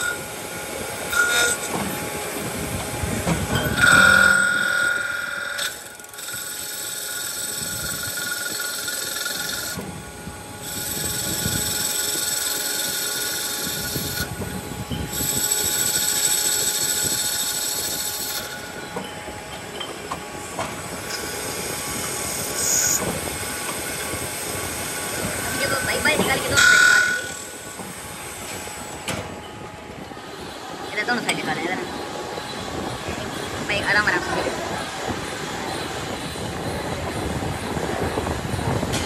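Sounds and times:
high-pitched metallic squealing: 0:00.0 - 0:02.7, 0:03.5 - 0:09.8, 0:10.6 - 0:20.1, 0:21.1 - 0:23.2, 0:24.1 - 0:38.8
lathe cutting metal: 0:00.0 - 0:29.1.

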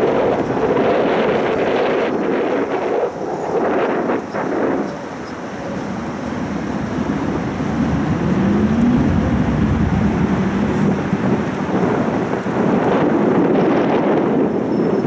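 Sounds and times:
wind buffeting microphone: 0:00.0 - 0:15.0
faint rising hum: 0:06.2 - 0:11.0.

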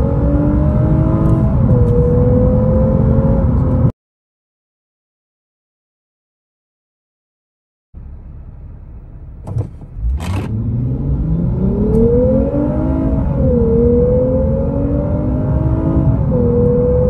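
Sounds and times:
car engine revving inside cabin: 0:00.0 - 0:03.9, 0:08.0 - 0:17.0.

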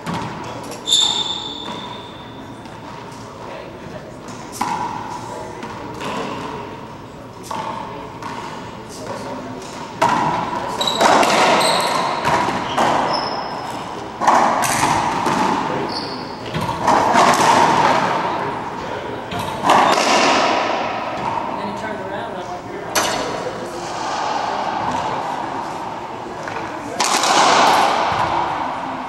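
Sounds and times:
racquetball hits ringing: 0:00.0 - 0:02.4, 0:10.0 - 0:18.4, 0:19.3 - 0:21.6, 0:22.9 - 0:29.0
sneakers squeaking on hardwood: 0:00.8 - 0:02.4, 0:10.7 - 0:13.9, 0:15.3 - 0:17.0.

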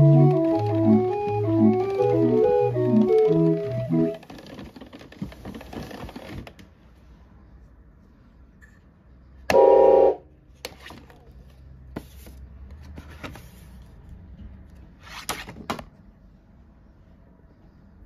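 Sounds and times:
hand-cranked organ chord: 0:00.0 - 0:04.2.

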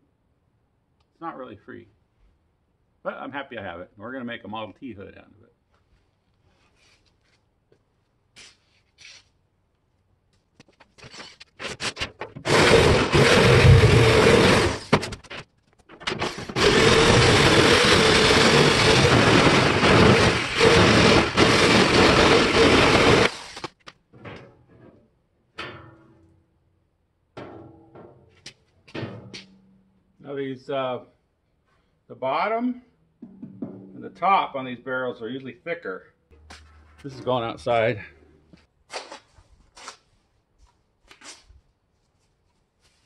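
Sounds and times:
power tool cutting steel drum: 0:12.4 - 0:14.9, 0:16.2 - 0:23.7.

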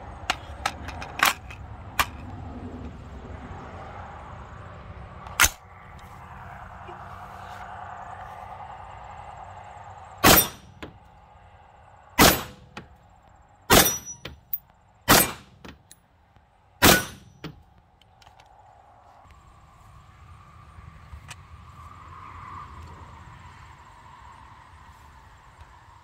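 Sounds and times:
rifle shots: 0:10.2 - 0:10.8, 0:12.2 - 0:12.7, 0:13.7 - 0:14.2, 0:15.1 - 0:15.6, 0:16.8 - 0:17.4
clang of steel target hit: 0:10.2 - 0:10.9, 0:12.2 - 0:12.7, 0:13.7 - 0:14.4, 0:15.1 - 0:15.5, 0:16.8 - 0:17.5.

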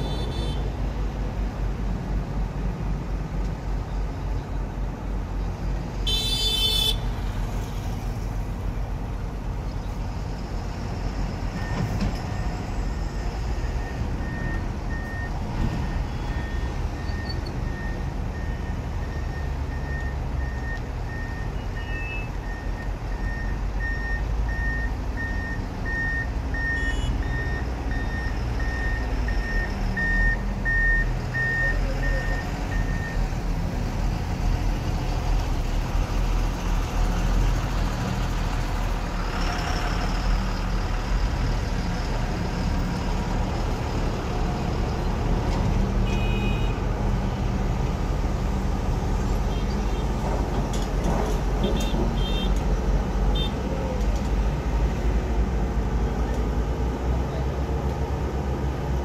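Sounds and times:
excavator diesel engine: 0:00.0 - 0:59.0
reversing alarm beeping: 0:13.1 - 0:33.2.

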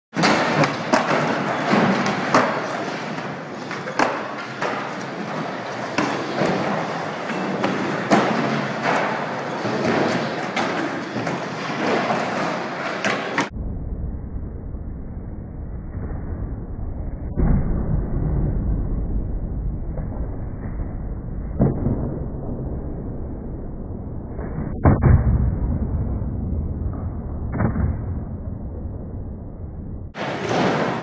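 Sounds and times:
skateboards rolling and clattering: 0:00.2 - 0:13.5, 0:30.2 - 0:31.0
skateboards slapping down: 0:00.2 - 0:13.5, 0:30.2 - 0:31.0.

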